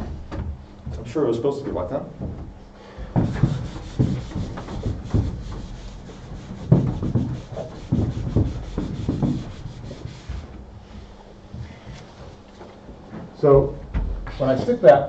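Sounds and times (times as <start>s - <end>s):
eraser rubbing on chalkboard: 3.2s - 10.6s.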